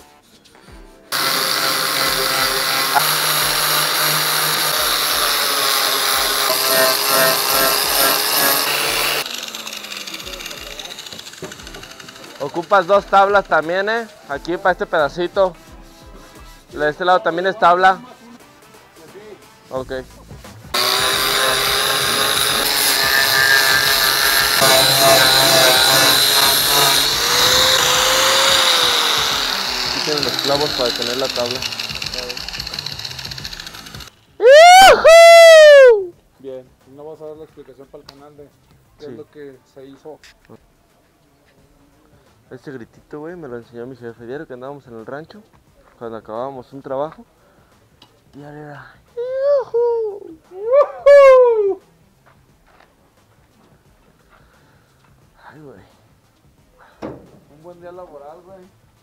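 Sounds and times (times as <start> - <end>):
angle grinder sanding metal: 1.1 - 14.1, 20.7 - 34.2.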